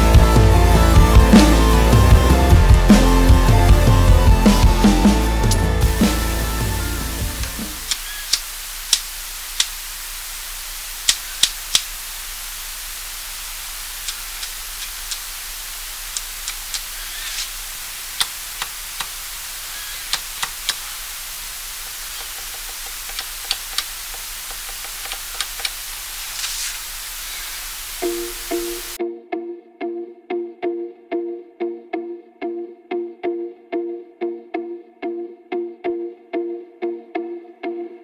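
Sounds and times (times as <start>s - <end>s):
steady hiss: 5.0s - 29.0s.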